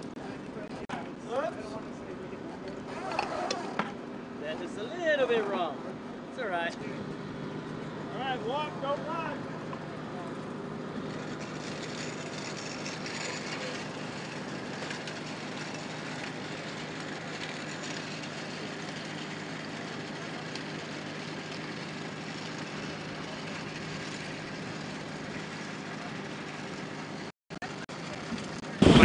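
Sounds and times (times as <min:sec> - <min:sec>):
aircraft engines droning: 0:05.8 - 0:27.3.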